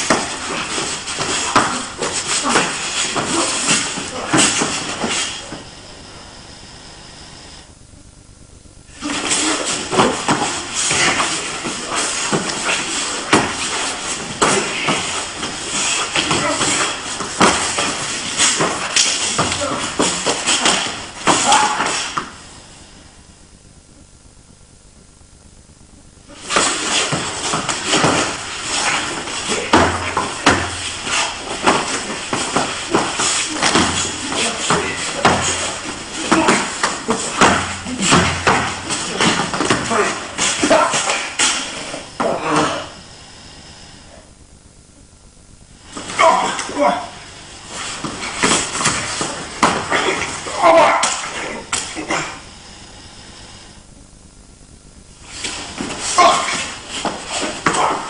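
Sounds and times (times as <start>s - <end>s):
bodies scuffling on a mat: 0.0s - 5.7s, 9.0s - 22.4s, 26.3s - 43.0s, 45.8s - 52.2s, 55.1s - 58.0s
steady hiss: 0.0s - 58.0s
bodies thudding on a mat: 9.0s - 22.2s, 26.4s - 42.8s, 47.6s - 51.9s.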